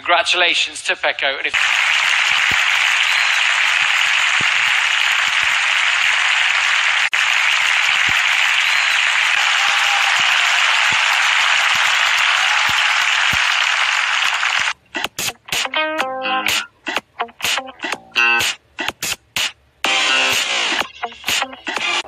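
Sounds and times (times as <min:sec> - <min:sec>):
audience applauding: 0:01.5 - 0:14.8.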